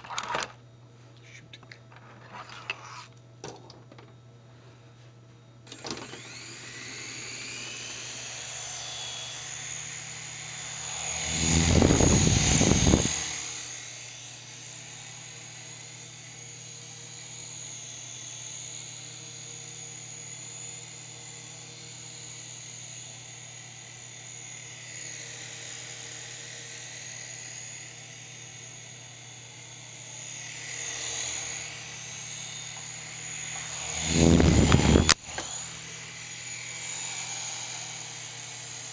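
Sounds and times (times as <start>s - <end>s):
toy helicopter rotors whirring: 5.7s - 38.9s
loud rushing swell: 10.3s - 13.6s, 33.5s - 35.2s.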